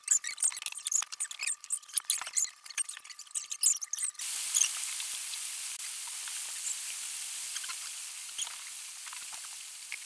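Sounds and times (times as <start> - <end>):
rag wiping metal squeaks: 0.0 - 4.7
steady hiss: 4.2 - 10.0.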